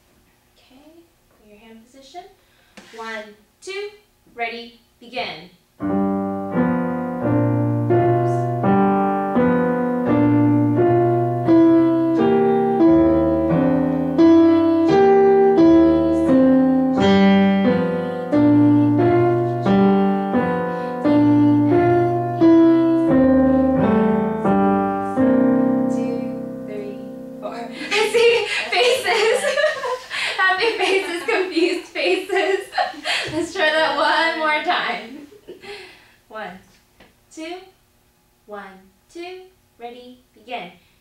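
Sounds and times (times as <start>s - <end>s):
digital piano duet: 5.8s - 29.9s.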